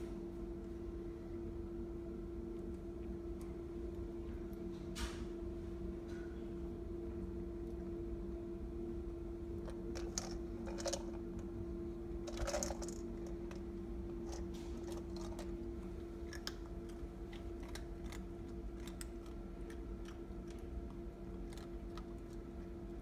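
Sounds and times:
treats rattling in plastic ball: 9.7 - 11.5, 12.2 - 15.7.

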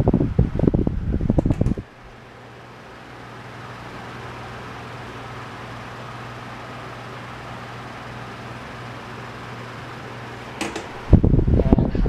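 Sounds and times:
wind rumble on microphone: 0.0 - 1.9, 11.0 - 12.0
fan humming: 0.0 - 12.0.

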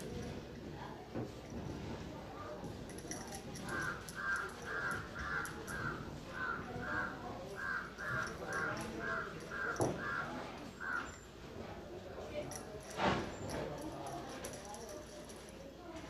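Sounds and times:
crow cawing: 3.7 - 11.2.

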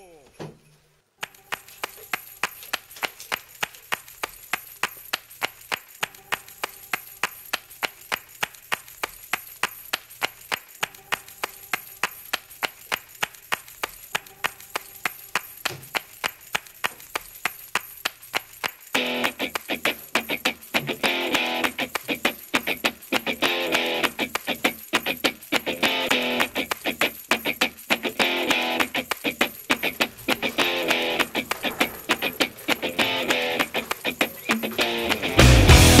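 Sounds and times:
rapid sharp ticking: 17.7 - 36.0.

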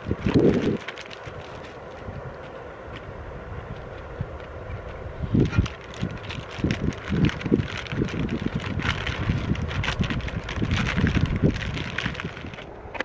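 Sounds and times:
aluminium foil crinkling: 0.0 - 2.6, 5.4 - 12.7
wind rumbling on microphone: 0.0 - 13.0.

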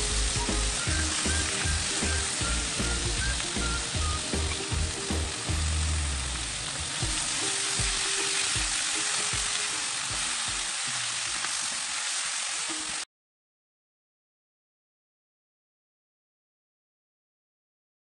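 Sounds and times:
vegetables sizzling in a pan: 0.0 - 13.1.

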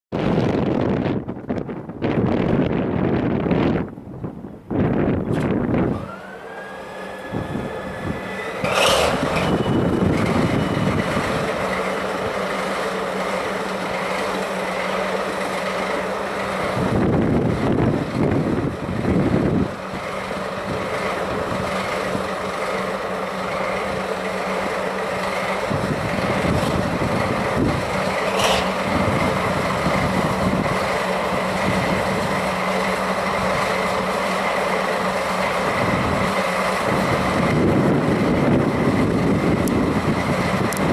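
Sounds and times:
wind buffeting microphone: 0.1 - 6.3, 7.2 - 40.9
diesel engine blast: 0.1 - 40.9
steady whine: 0.2 - 40.9
starter motor whine: 5.3 - 40.9
locomotive engine idling: 5.9 - 40.9.

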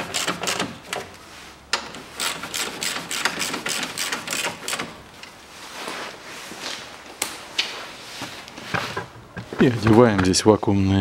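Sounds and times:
hand ratchet clicking: 0.0 - 1.0, 2.2 - 5.0.

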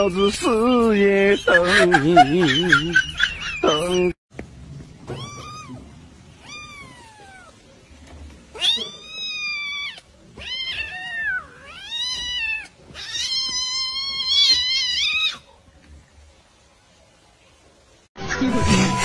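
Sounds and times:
cat meowing: 5.1 - 7.6, 8.5 - 15.5.

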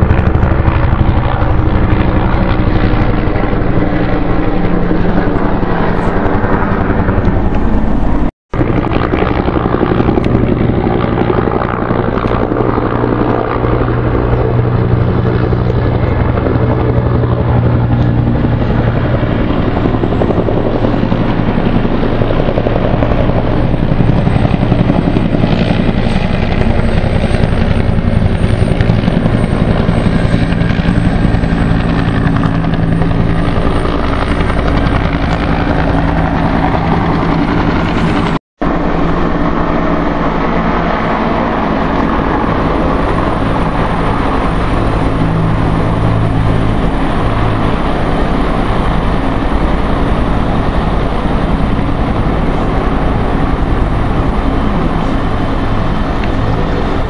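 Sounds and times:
helicopter running: 0.0 - 57.0.

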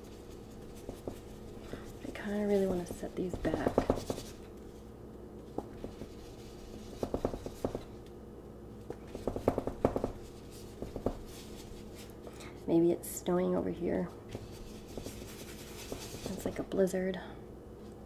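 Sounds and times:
paintbrush tapping: 0.6 - 4.4, 5.6 - 8.0, 9.0 - 11.3.

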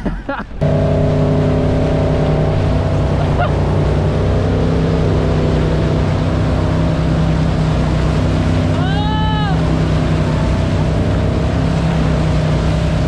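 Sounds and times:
rushing wake water: 0.5 - 13.0
boat engine running: 0.6 - 13.0.

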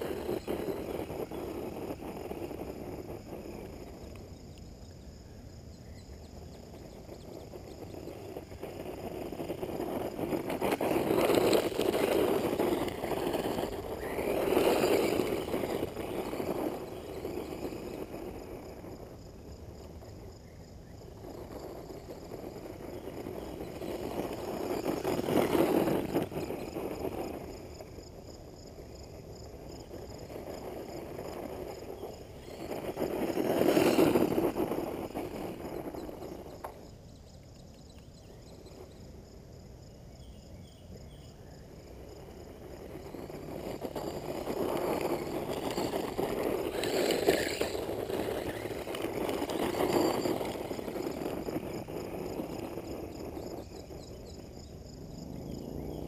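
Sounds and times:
tyres on gravel: 7.8 - 19.2, 21.0 - 27.9, 29.5 - 36.9, 42.2 - 54.0.

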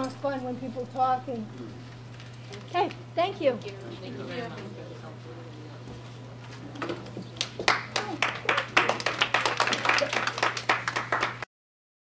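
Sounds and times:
small group clapping: 7.3 - 11.5.

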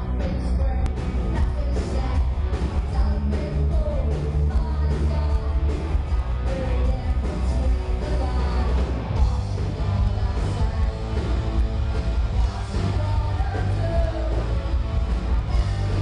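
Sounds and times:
woman singing: 0.0 - 8.9, 9.8 - 11.3, 12.4 - 14.6
deep bass: 0.0 - 16.0
punk rock band playing: 0.0 - 16.0
drum beats: 0.7 - 16.0.

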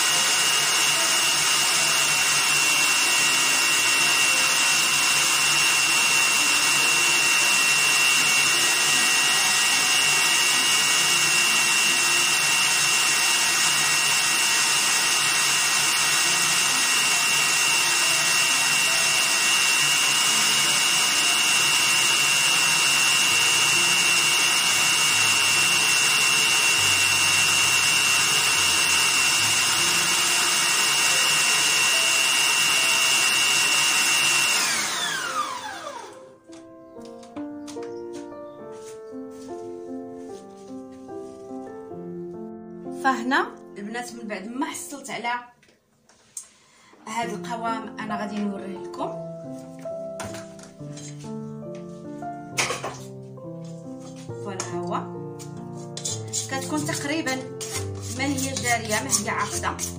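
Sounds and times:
beater whipping batter in metal bowl: 0.0 - 35.6, 55.5 - 59.9
electric stand mixer running: 0.0 - 36.3.

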